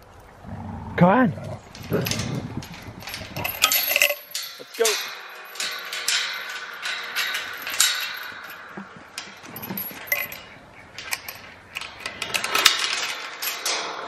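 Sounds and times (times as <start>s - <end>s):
chain rattling against metal gate: 1.4s - 14.0s.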